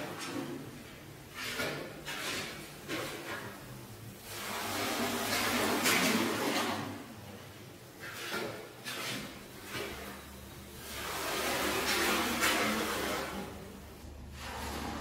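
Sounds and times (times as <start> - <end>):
tool scraping across wet rug: 1.3 - 3.6, 8.0 - 10.2, 10.8 - 13.5, 14.3 - 15.0.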